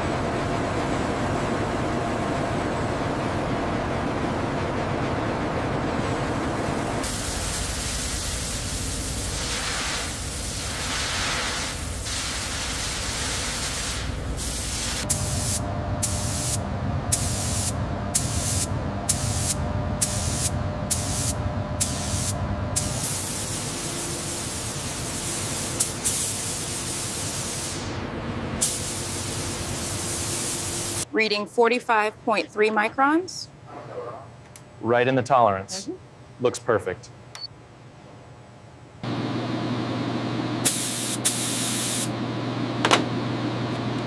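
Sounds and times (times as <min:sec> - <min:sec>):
spray gun hissing: 0:07.0 - 0:28.0, 0:28.6 - 0:31.0, 0:40.6 - 0:42.1
low hum: 0:15.1 - 0:23.0.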